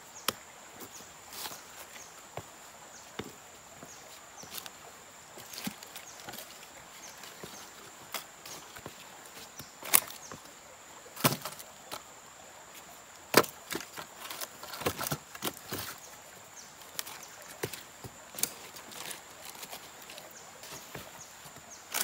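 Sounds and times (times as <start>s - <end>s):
branches knocking on stones: 5.4s - 10.5s, 11.2s - 12.1s, 13.2s - 16.1s, 16.8s - 22.0s.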